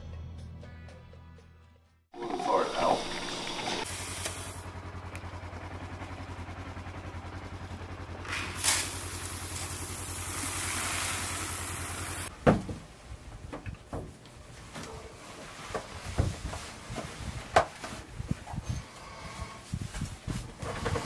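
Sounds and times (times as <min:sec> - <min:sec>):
engine idling: 0:02.2 - 0:12.3
dry corn pouring into trough: 0:08.3 - 0:12.3.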